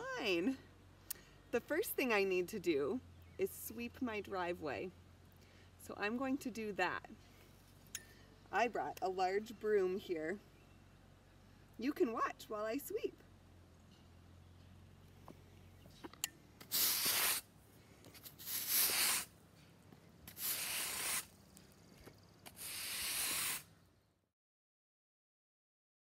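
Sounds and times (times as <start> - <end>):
push broom sweeping asphalt: 16.6 - 21.8, 22.4 - 23.7.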